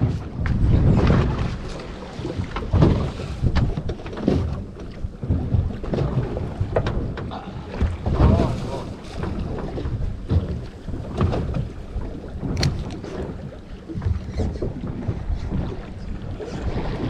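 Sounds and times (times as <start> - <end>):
sea slapping against boat: 0.0 - 17.0
wind buffeting microphone: 0.0 - 17.0.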